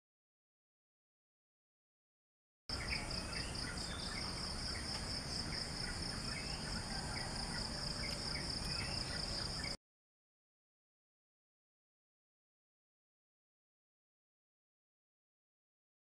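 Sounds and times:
bird chirps: 2.7s - 9.8s
insect chorus trilling: 2.7s - 9.8s.

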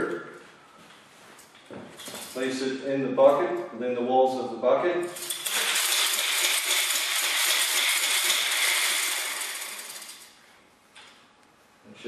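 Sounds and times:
brush spinner whirring in bucket: 5.2s - 10.3s.

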